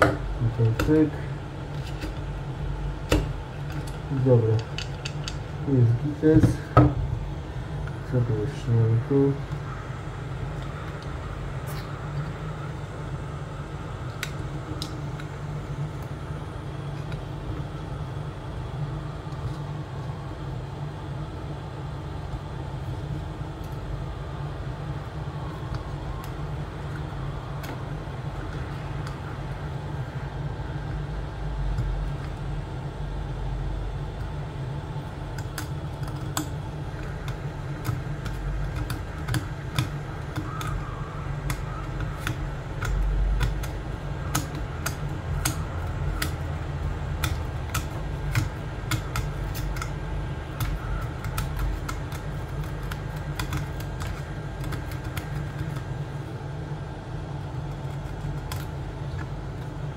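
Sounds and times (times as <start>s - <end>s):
pick clicking and scraping plastic: 35.3s - 55.9s.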